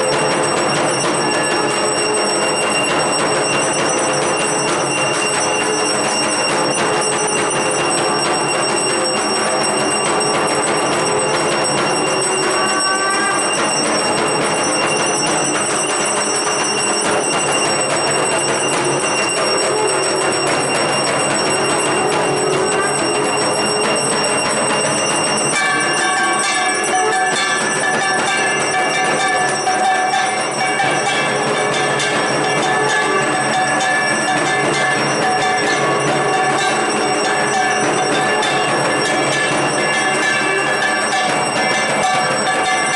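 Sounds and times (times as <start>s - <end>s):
brass hand bells ringing: 0.0s - 42.9s.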